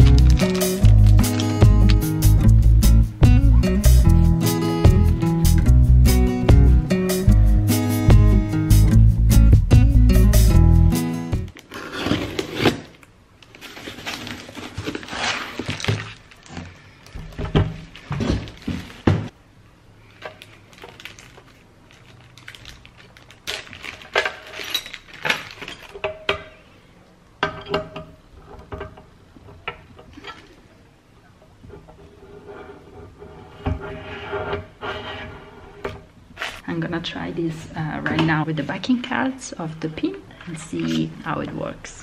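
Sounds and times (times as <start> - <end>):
plastic bags rustling: 0.0 - 2.3, 11.5 - 19.4, 20.0 - 26.1
cardboard scraped and pulled: 11.7 - 12.9.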